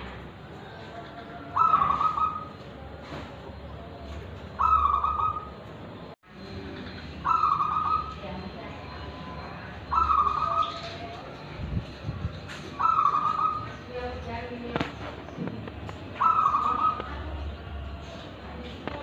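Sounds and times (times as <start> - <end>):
dove cooing: 0.5 - 3.2, 3.8 - 5.6, 7.2 - 8.3, 8.9 - 11.2, 12.7 - 13.8, 16.1 - 17.4.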